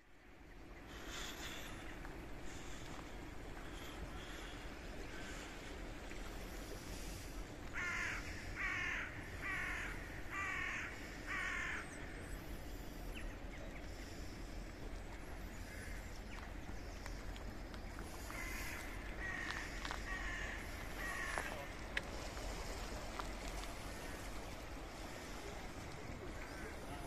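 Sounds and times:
steady background hiss: 0.0 - 27.0
crow cawing: 7.7 - 11.9, 18.2 - 21.7.

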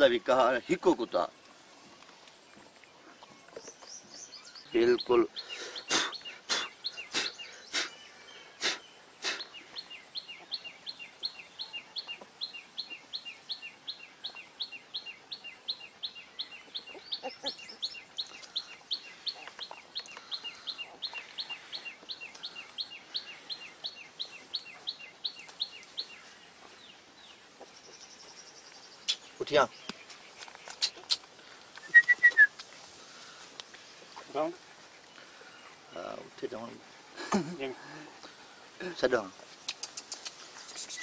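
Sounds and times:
bird chirping: 0.0 - 41.0
sharp clicks: 39.6 - 41.0.

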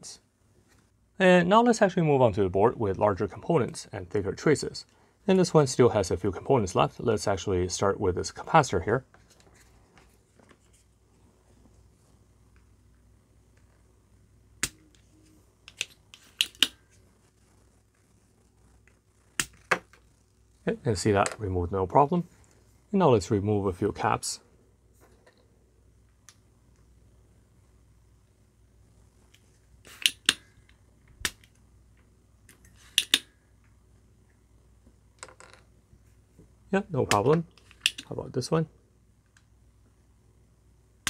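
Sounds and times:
desoldering plunger clicks: 29.9 - 30.4, 32.9 - 33.3, 37.1 - 38.1.

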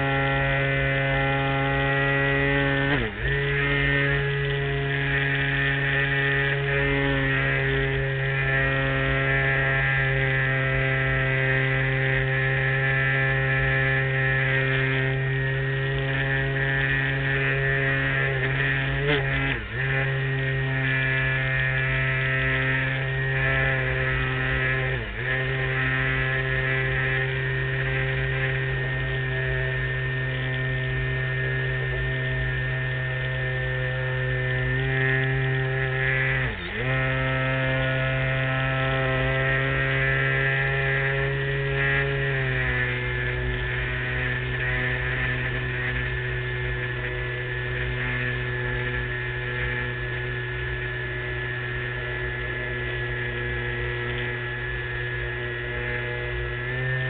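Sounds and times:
model airplane motor droning: 0.0 - 57.0.

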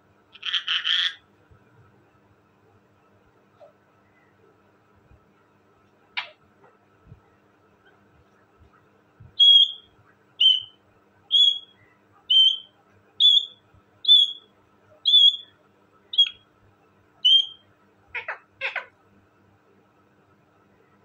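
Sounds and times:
harsh rough parakeet calls: 0.3 - 1.3, 6.2 - 6.4, 9.4 - 15.5, 16.1 - 16.4, 17.2 - 19.0
parakeet whistled calls: 9.4 - 15.5, 16.2 - 16.4, 17.2 - 17.6.

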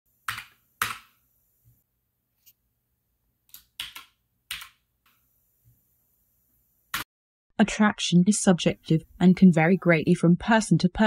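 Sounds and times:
keystrokes on computer keyboard: 3.5 - 4.8.

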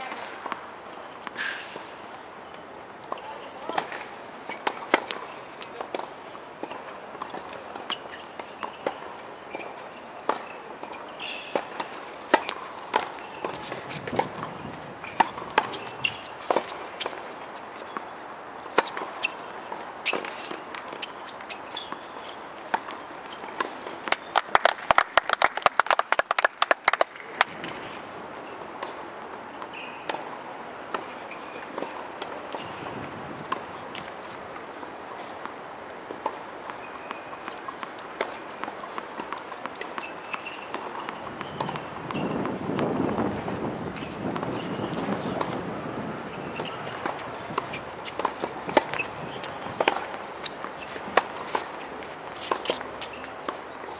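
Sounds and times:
outdoor background noise: 0.0 - 53.9
tennis balls struck and bouncing: 3.0 - 25.0, 35.4 - 42.9, 46.6 - 53.9.

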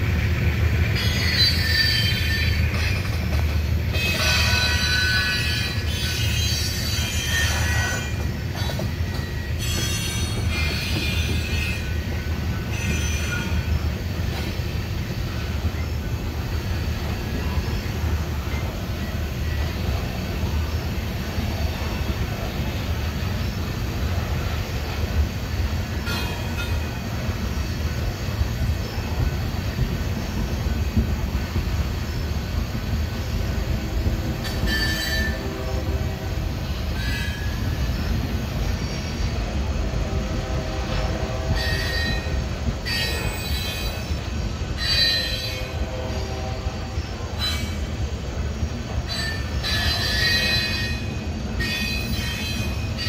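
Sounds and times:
train wheels rumbling on rail: 0.0 - 53.0
high wheel squeals: 1.0 - 3.2, 4.0 - 14.5, 34.4 - 35.6, 36.7 - 38.1, 40.9 - 46.3, 49.1 - 53.0.

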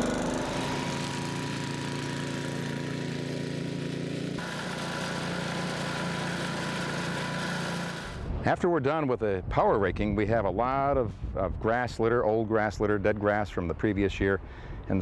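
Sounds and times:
small gas engine running: 0.0 - 8.3.

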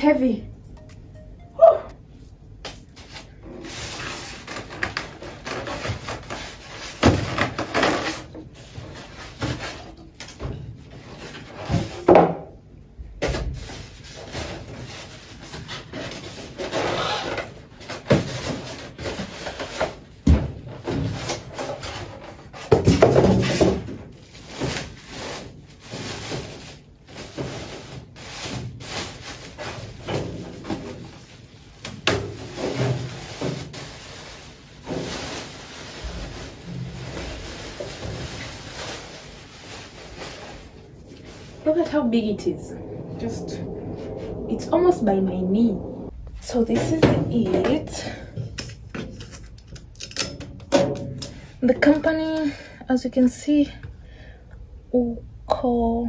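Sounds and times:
packing foam rubbing and rustling: 23.4 - 42.6.

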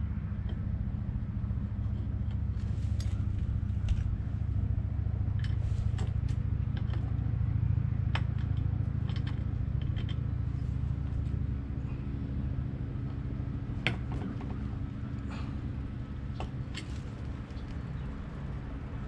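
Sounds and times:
low drone: 0.0 - 19.0.

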